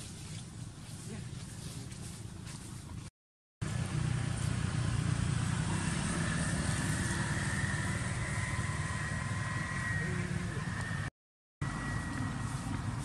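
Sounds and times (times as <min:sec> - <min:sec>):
road traffic rumble: 0:00.0 - 0:13.0
thin high whine: 0:06.6 - 0:13.0.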